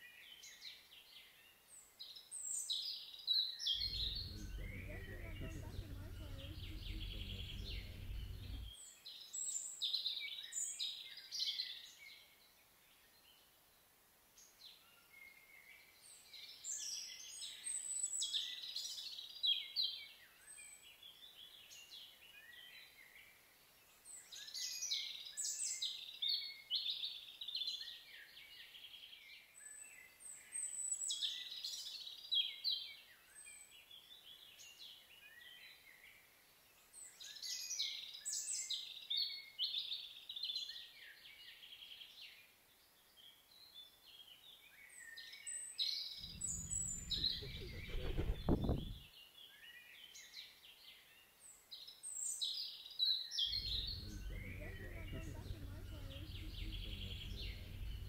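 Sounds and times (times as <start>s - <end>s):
low rumble: 3.8s - 8.7s, 46.2s - 49.0s, 53.5s - 58.0s
songbirds chirping and whistling: 3.8s - 8.8s, 45.9s - 50.3s, 52.5s - 58.0s.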